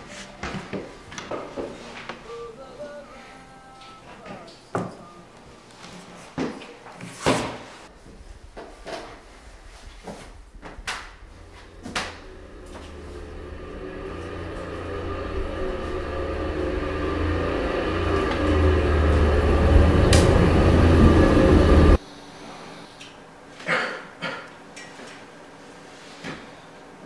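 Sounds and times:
low rumbling drone: 7.9s - 22.0s.

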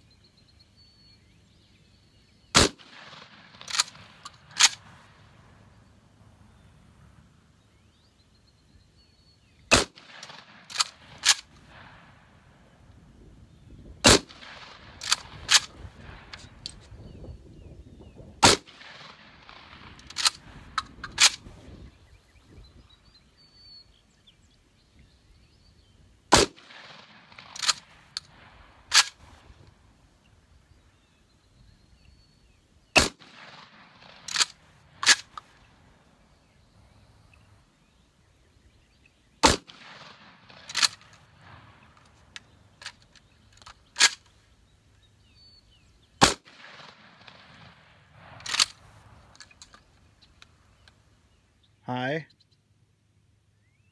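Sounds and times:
shotgun shots: 2.5s - 5.2s, 9.7s - 12.4s, 13.9s - 16.6s, 18.4s - 21.5s, 26.3s - 29.5s, 33.0s - 35.5s, 39.4s - 42.2s, 46.2s - 49.3s
short sharp cracks: 2.6s - 5.2s, 9.7s - 12.2s, 18.4s - 21.6s, 26.3s - 29.8s, 33.0s - 35.7s, 39.4s - 44.4s, 46.2s - 51.0s.

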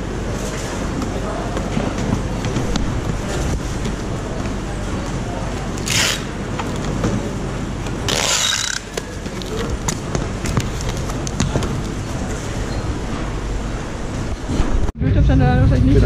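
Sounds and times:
steady background hum: 0.0s - 16.0s
packing tape ripping: 5.8s - 6.3s, 8.1s - 9.7s.

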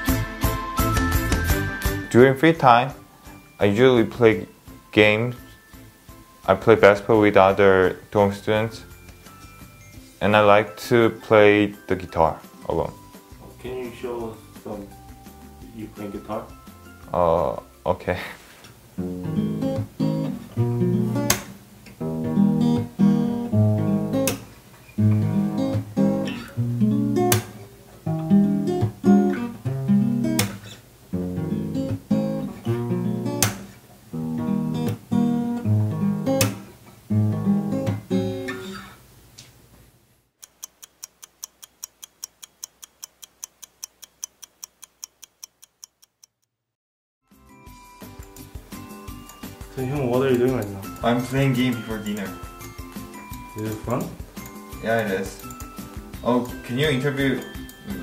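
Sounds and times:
acoustic guitar playing: 0.0s - 17.9s, 18.9s - 39.0s, 47.3s - 58.0s
fast high ticks: 40.4s - 46.6s.

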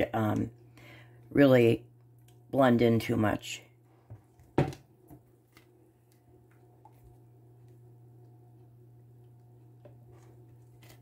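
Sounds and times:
faint low hum: 0.0s - 11.0s
plastic cup knocking on counter: 4.6s - 4.8s.

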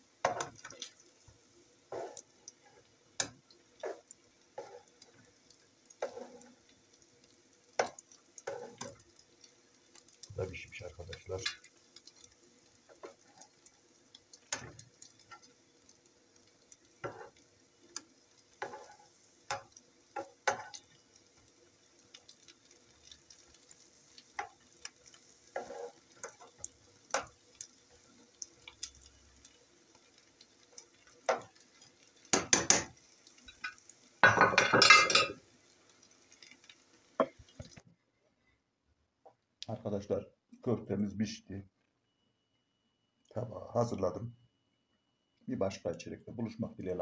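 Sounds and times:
meatballs sizzling in oil: 0.0s - 37.9s
pan and dish clatter: 32.3s - 35.4s.

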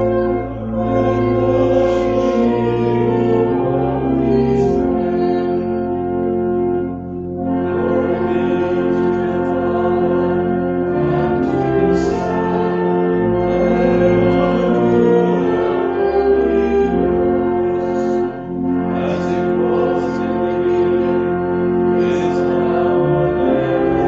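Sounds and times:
church organ: 0.0s - 24.0s
congregation singing: 0.0s - 24.0s.

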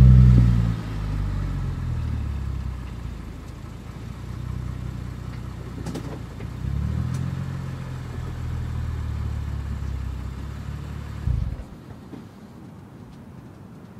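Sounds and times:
car engine idling: 0.0s - 12.4s.

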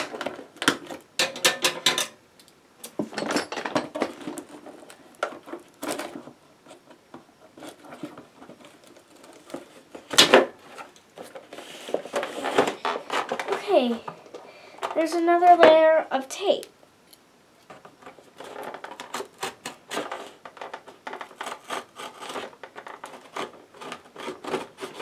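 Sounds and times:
cardboard crackling: 7.5s - 14.1s, 18.0s - 25.0s.

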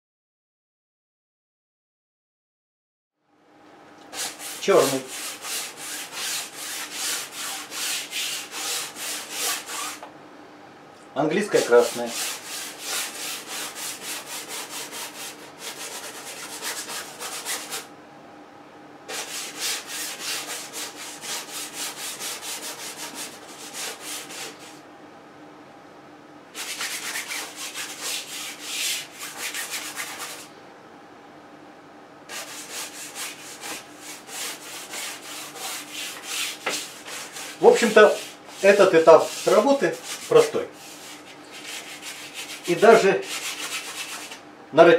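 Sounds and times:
brush scrubbing paint on canvas: 4.1s - 10.0s, 11.6s - 17.9s, 19.1s - 24.8s, 26.6s - 30.5s, 32.3s - 44.4s.

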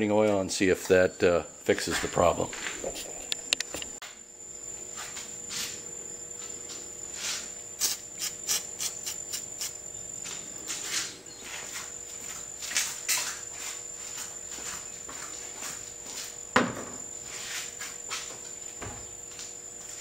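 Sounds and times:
steady high-pitched whine: 0.0s - 20.0s
aerosol can hissing: 7.8s - 9.8s.

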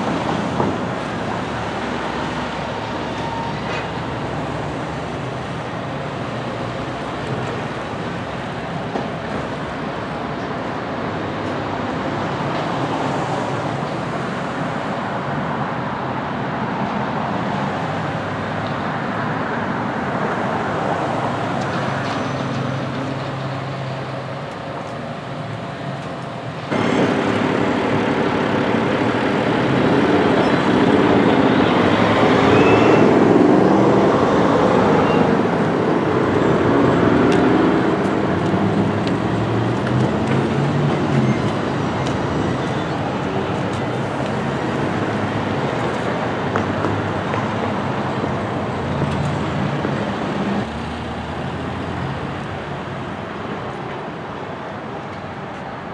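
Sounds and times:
diesel engine revving: 26.7s - 43.7s.

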